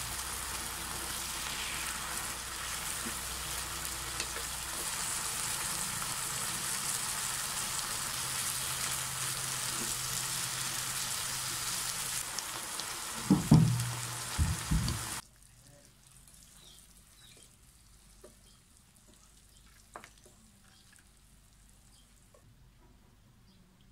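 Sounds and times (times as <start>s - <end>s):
food sizzling in a frying pan: 0.0s - 15.2s
dull thumps: 13.2s - 15.2s.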